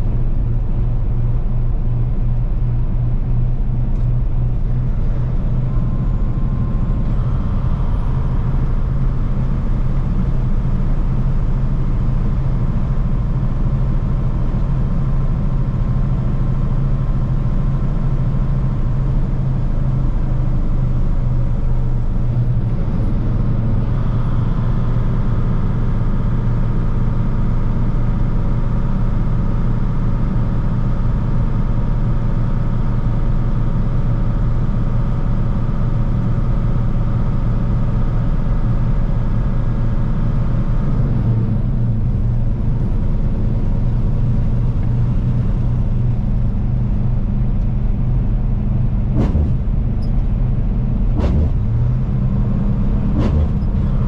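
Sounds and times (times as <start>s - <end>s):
diesel truck engine droning: 0.0s - 54.0s
tyre and road noise: 41.6s - 54.0s.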